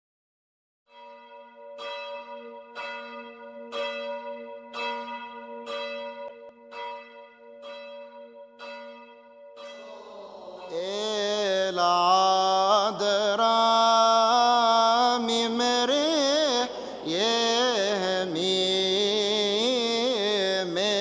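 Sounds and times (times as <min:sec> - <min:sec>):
church bell tolling: 0:00.9 - 0:13.6.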